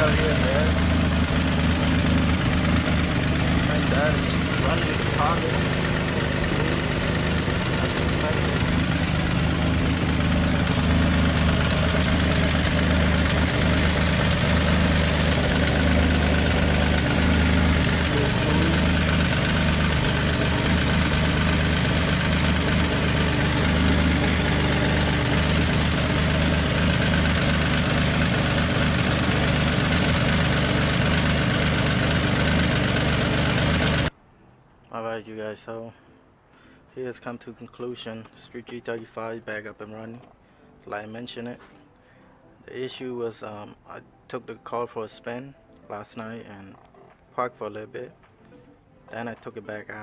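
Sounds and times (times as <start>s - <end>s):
car engine idling: 0.0s - 34.1s.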